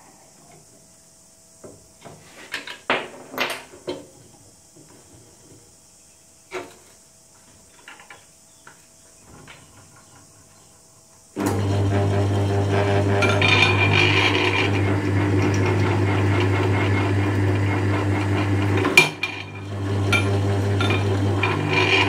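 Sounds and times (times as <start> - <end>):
drill press motor humming: 11.4 - 22.0.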